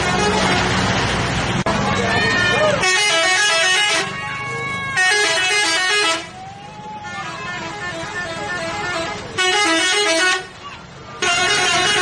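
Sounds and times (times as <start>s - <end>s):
musical bus horn: 0.0s - 0.9s, 2.3s - 6.4s, 7.0s - 10.6s, 11.2s - 12.0s
traffic noise: 0.0s - 12.0s.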